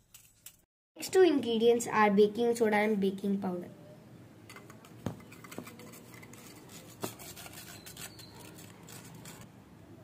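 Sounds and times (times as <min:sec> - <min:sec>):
spoon scraping metal mesh sieve: 0:04.5 - 0:09.5.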